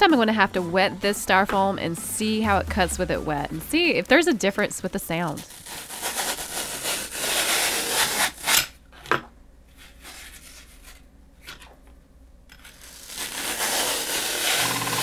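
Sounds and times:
floral foam slicing rasp: 12.8s - 15.0s.

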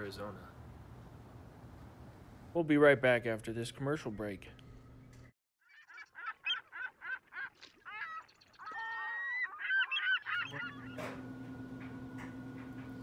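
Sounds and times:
birds calling: 5.6s - 13.0s.

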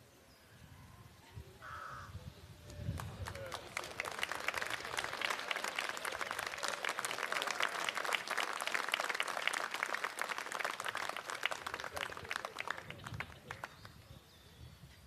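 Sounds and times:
people clapping: 2.8s - 14.0s.

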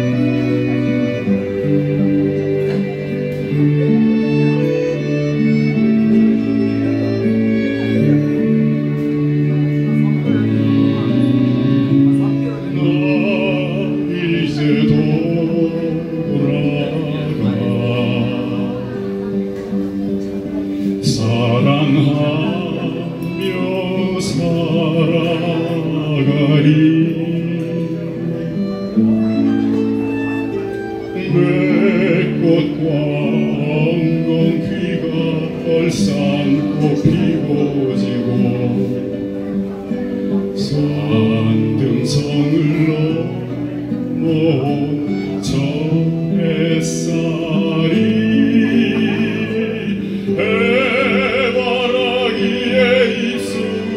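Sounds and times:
keyboard accompaniment: 0.0s - 53.9s
man singing operatically: 11.8s - 19.4s, 21.0s - 28.6s, 31.1s - 39.4s, 40.4s - 53.9s.

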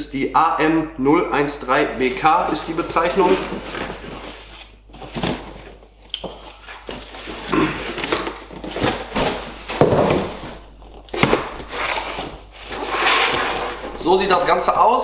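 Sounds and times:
cardboard boxes rustling and scraping: 2.0s - 5.8s, 6.5s - 14.7s.

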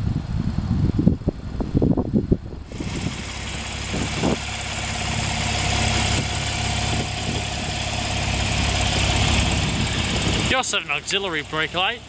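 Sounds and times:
car engine idling: 2.6s - 12.0s.

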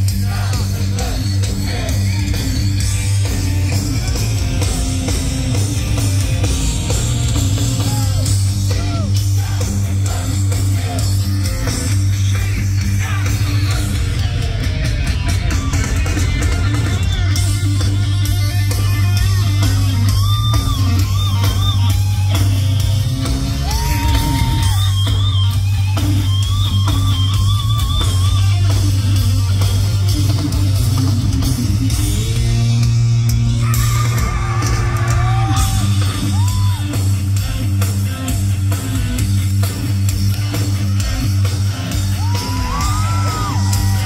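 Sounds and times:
heavy metal band playing live: 0.0s - 44.0s
distorted electric guitar solo: 19.0s - 30.0s.

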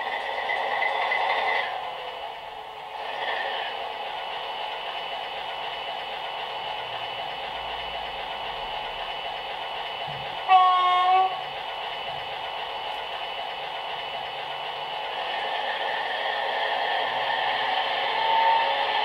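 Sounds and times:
diesel engine idling: 3.8s - 15.9s.

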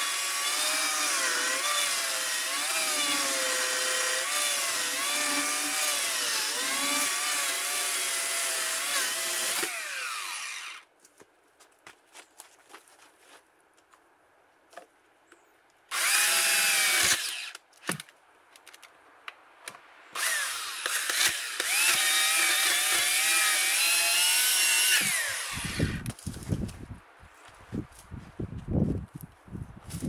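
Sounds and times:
electric chainsaw cutting log: 0.0s - 10.8s, 15.9s - 17.6s, 20.2s - 26.1s.

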